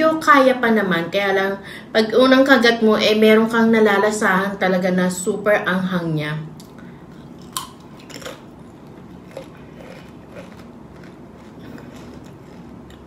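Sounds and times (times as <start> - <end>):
chip crunching: 6.6 - 13.0.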